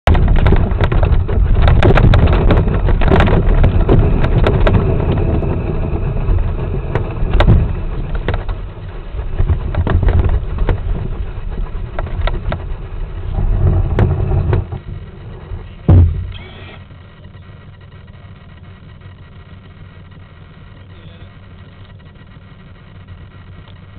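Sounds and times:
rain tapping on canopy: 0.0s - 16.3s
muffled low rumble: 0.0s - 23.9s
loud knock: 15.9s - 16.4s.

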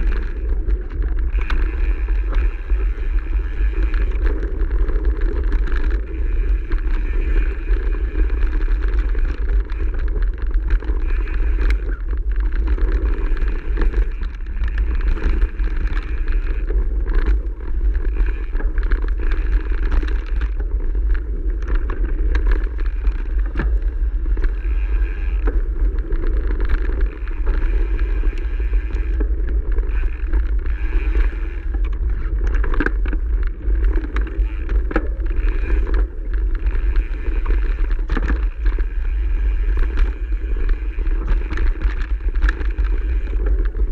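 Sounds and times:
bike clicks and rattles: 0.0s - 43.9s
bike tyres on gravel path: 0.0s - 43.9s
wind buffeting microphone: 0.0s - 43.9s.

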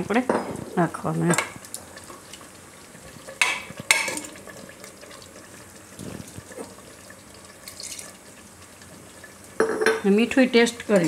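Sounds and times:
water splashing into curry: 7.5s - 8.3s.

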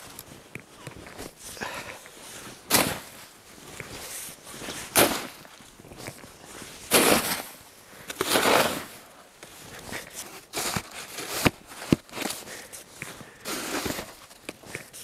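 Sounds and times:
snow shovel scraping through snow: 2.2s - 3.3s, 4.0s - 5.5s, 6.5s - 7.6s, 8.2s - 12.5s, 13.4s - 14.3s
shovel knocks: 2.7s - 3.2s, 5.0s - 5.4s, 6.9s - 7.5s.

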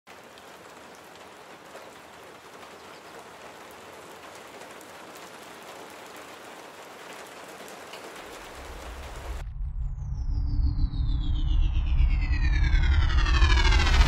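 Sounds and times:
faint raindrop ticks: 0.1s - 9.4s
steady rain hiss: 0.1s - 9.4s.

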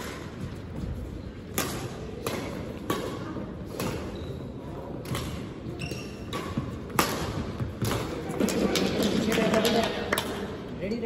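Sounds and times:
low hum of hall: 0.0s - 11.0s
rackets striking shuttlecock: 1.4s - 8.9s.

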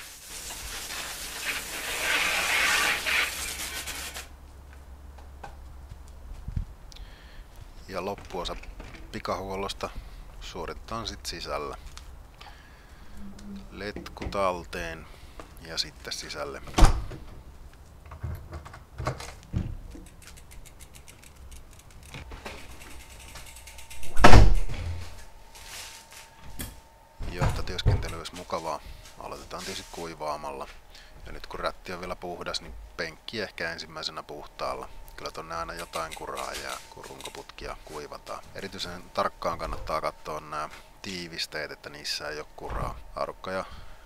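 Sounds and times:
hose water spraying on bike: 0.0s - 4.3s
footsteps on paving: 4.8s - 6.8s
bicycle freewheel ticking: 20.0s - 24.1s.

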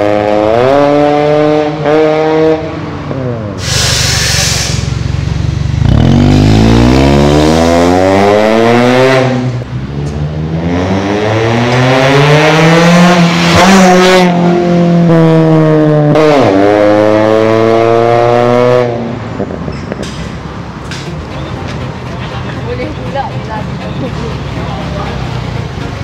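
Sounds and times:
car engine accelerating: 0.0s - 19.7s.

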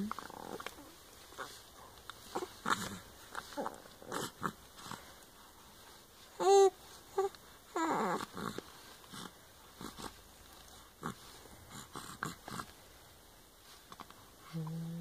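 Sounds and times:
baby mouth noises: 0.1s - 5.0s
baby cooing: 2.3s - 4.6s, 6.4s - 8.6s.

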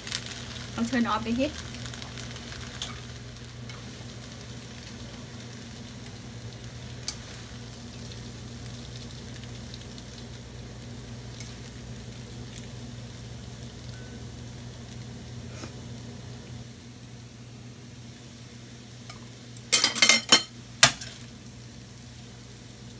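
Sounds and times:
noodles sizzling in a pan: 0.0s - 22.9s
chopsticks clicking on a pan: 7.0s - 7.2s.

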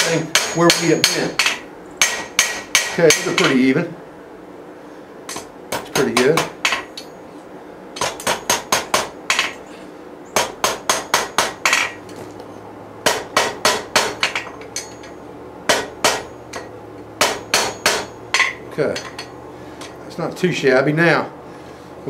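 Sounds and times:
hammer ringing on anvil: 0.0s - 3.6s, 13.1s - 19.3s.

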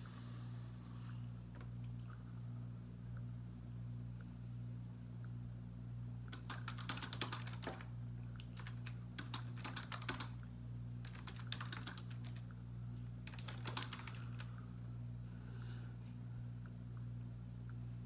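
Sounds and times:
steady low hum: 0.0s - 18.0s
typing on computer keyboard: 6.3s - 7.9s, 8.5s - 10.4s, 11.0s - 12.4s, 13.2s - 14.5s.

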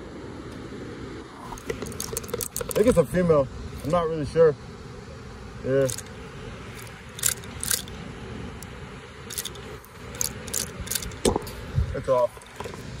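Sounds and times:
fishing reel clicks and scrapes: 1.6s - 3.0s, 5.8s - 6.1s, 6.8s - 7.9s, 9.3s - 11.3s.

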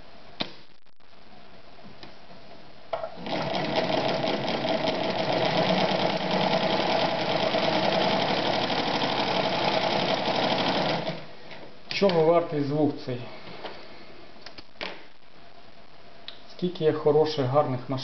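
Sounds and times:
sewing machine clattering: 3.2s - 11.2s.

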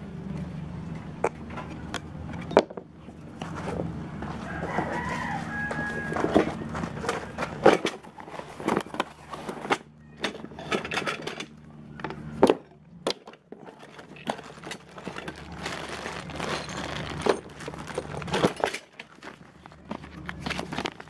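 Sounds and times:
metal parts knocking and clinking: 6.2s - 15.5s, 16.4s - 21.0s
packaging rustling: 13.8s - 21.0s.

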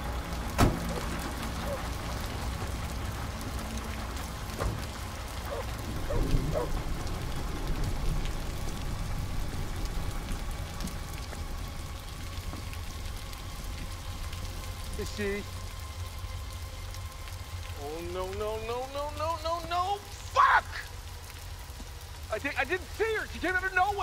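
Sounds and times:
low rumble: 0.0s - 17.8s
heavy rain on a road: 0.0s - 24.0s.

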